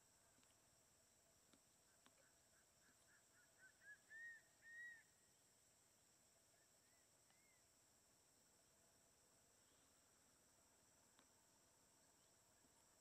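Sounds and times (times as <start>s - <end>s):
high insect drone: 0.0s - 13.0s
eagle whistled calls: 2.8s - 5.1s.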